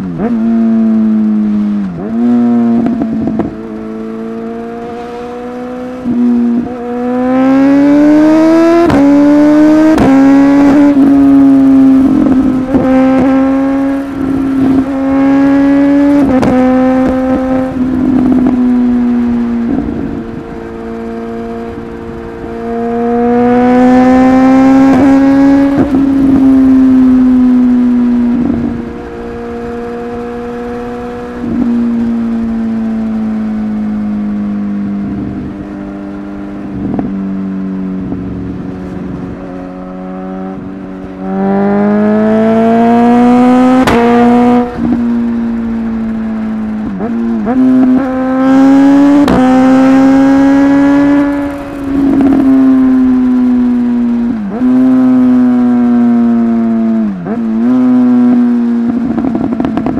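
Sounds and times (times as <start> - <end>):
motorcycle engine revving: 0.0 - 59.9
exhaust pop: 43.7 - 48.1.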